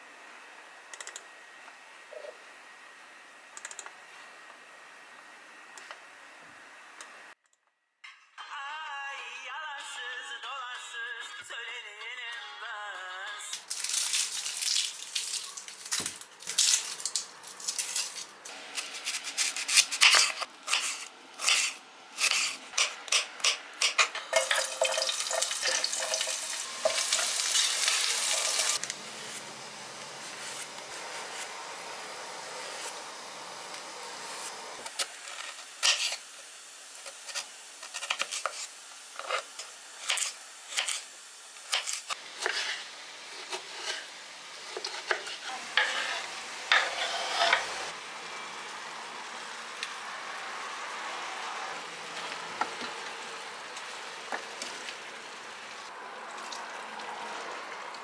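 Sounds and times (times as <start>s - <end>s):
steady hiss: 13.6s - 55.9s
vegetable peeler scraping squash: 17.7s - 24.1s, 44.7s - 47.9s.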